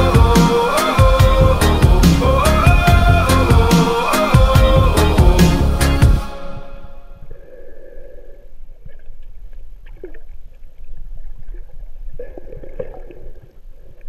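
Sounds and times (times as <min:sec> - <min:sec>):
gurgling bubbles: 0:11.2 - 0:14.0.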